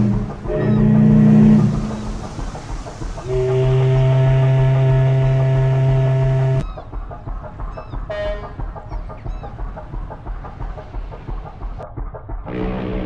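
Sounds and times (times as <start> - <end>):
deep boat horn blast: 0.0 - 2.4, 3.2 - 6.6, 8.1 - 8.6, 12.5 - 13.0
low rhythmic throb: 0.0 - 13.0.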